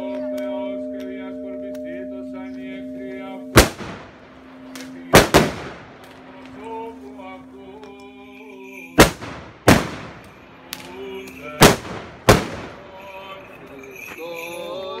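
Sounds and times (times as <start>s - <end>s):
firecrackers banging: 3.6s - 7.1s, 8.7s - 14.1s.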